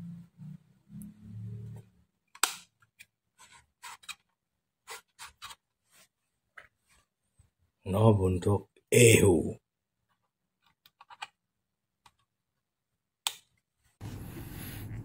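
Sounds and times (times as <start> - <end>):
low hum: 14.0 - 15.0.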